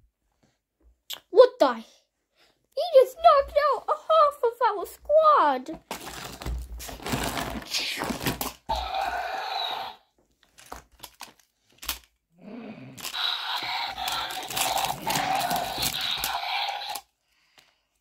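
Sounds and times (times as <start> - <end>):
crackly rustling and crunching: 5.8 - 8.9, 10.2 - 12.2, 13.0 - 17.0.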